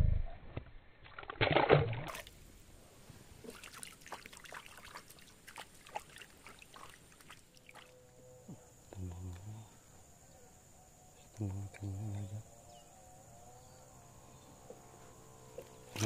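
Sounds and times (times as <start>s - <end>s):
fish splashing into water: 1.0s - 2.4s, 3.4s - 7.9s
faint water drips: 3.4s - 8.1s.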